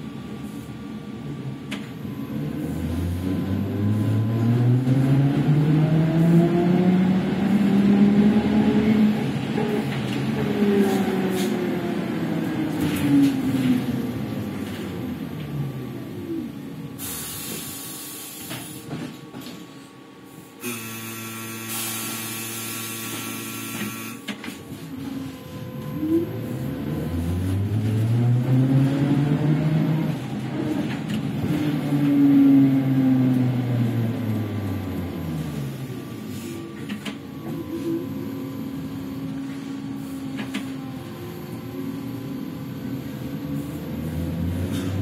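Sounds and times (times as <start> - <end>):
trolleybus motor whine: 0.0 - 45.0
air hiss bursts: 17.0 - 18.5, 21.7 - 22.8.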